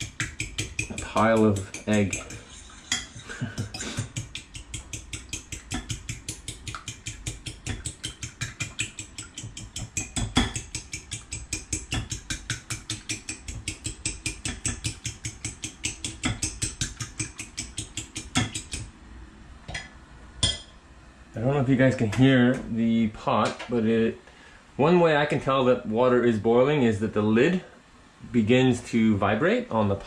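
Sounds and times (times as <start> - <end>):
fork beating eggs in bowl: 0.0 - 18.9.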